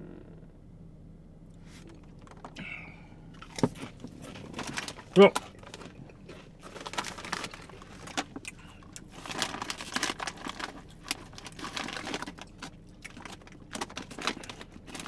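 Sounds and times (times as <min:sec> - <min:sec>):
chip bag crinkling: 0:03.4 - 0:15.0
plastic bottle crackling: 0:03.4 - 0:15.0.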